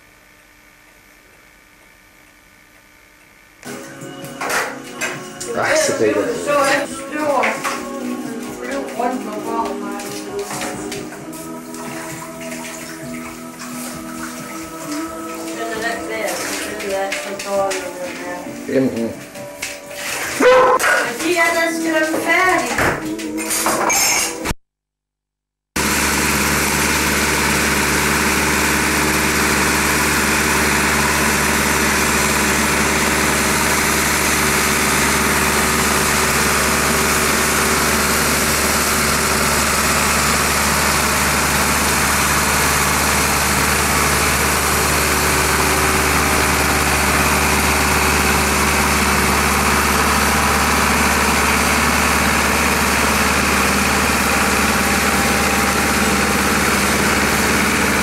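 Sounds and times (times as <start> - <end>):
tractor diesel engine running: 25.8 - 58.0.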